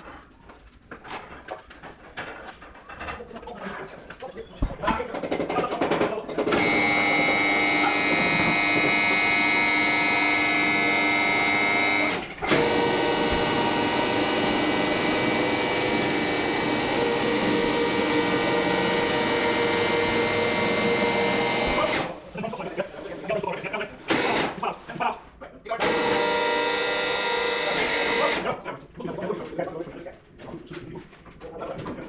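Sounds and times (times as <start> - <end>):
electric jacks whining: 6.4 - 22.2, 24.1 - 24.6, 25.8 - 28.5.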